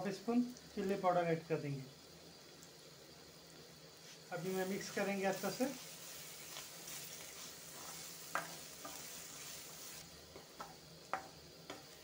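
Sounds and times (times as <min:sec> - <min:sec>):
spices sizzling in oil: 0:00.0 - 0:12.0
spatula stirring and scraping: 0:04.0 - 0:12.0.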